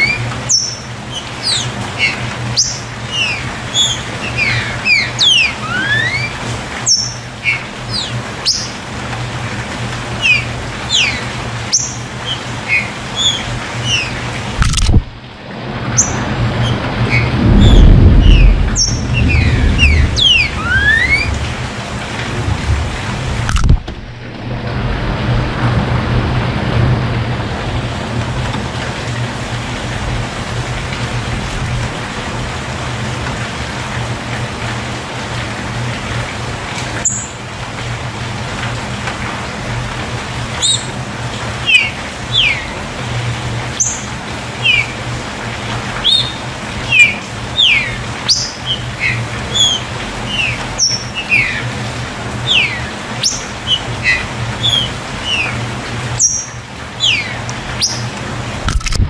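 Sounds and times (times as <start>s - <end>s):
birds chirping: 0.0s - 14.6s, 15.9s - 21.7s, 40.5s - 42.8s, 43.7s - 45.0s, 45.9s - 58.2s
water pouring off roof: 0.0s - 58.8s
steady rain: 0.0s - 59.0s.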